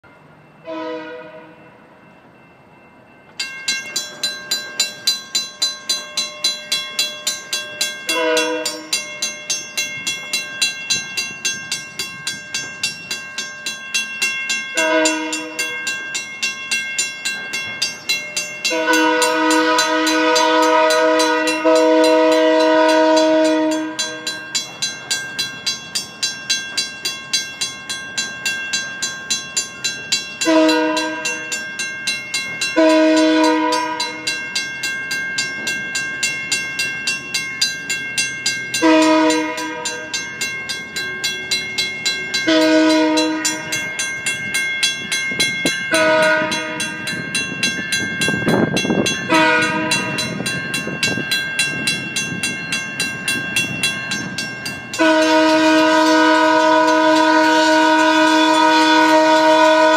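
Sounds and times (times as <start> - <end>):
railroad crossing bell clanging: 0.0 - 59.9
locomotive horn blasts: 0.6 - 1.7, 8.1 - 9.0, 14.7 - 15.8, 18.6 - 24.3, 30.4 - 31.5, 32.8 - 34.3, 38.8 - 40.1, 42.4 - 43.8, 45.9 - 47.1, 49.3 - 50.4, 55.0 - 59.9.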